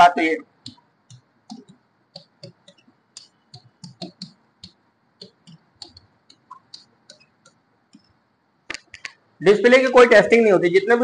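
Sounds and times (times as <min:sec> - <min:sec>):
marker tapping on writing board: 0:00.7 - 0:08.1.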